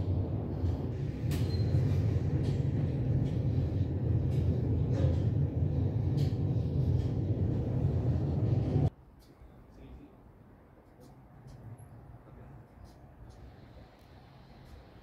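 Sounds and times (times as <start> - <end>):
lift cabin rumble and hum: 0.0 - 8.9.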